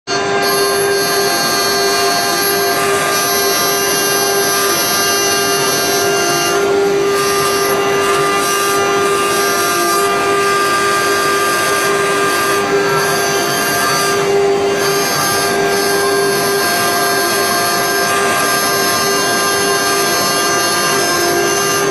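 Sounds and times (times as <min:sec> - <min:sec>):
router spindle whine: 0:00.1 - 0:21.9.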